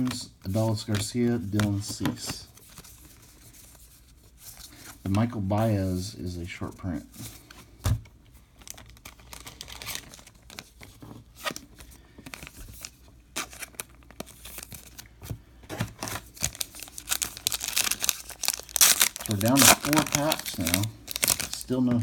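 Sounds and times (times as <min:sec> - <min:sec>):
foil wrapper crinkling and tearing: 0:08.6 - 0:15.1, 0:15.9 - 0:22.0.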